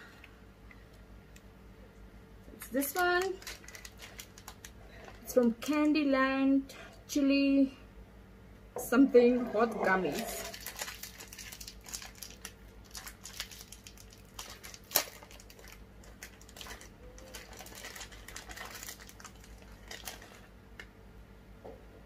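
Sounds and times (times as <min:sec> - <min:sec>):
sweet wrapper crinkling: 0:02.5 - 0:06.0, 0:10.1 - 0:20.9
wrapper sharp snap: 0:10.8 - 0:16.7.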